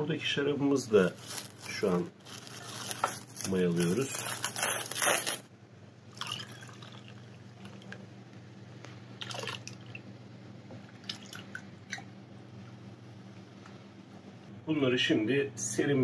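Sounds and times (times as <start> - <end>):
liquid drips and small splashes: 6.1 - 8.1, 9.2 - 10.1, 10.8 - 12.2.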